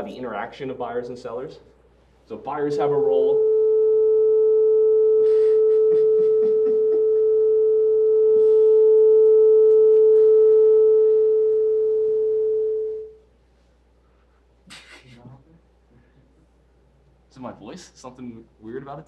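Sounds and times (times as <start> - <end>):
steady electronic tone: 2.4 - 13.2.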